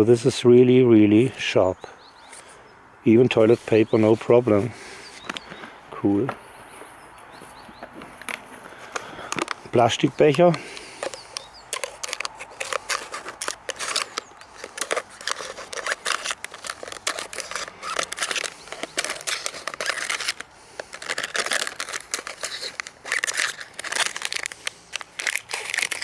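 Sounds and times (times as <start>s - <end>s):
plastic crackling: 8.1s - 26.0s
scissors snipping plastic: 10.3s - 26.0s.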